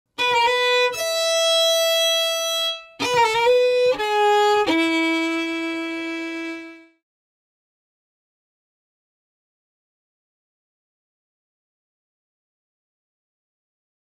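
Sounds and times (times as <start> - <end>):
solo violin phrase: 0.2 - 7.0.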